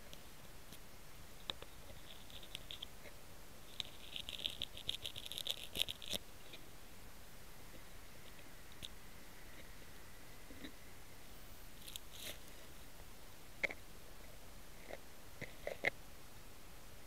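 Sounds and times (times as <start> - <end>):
grass scratching on camera: 1.5 - 6.6, 11.8 - 12.8.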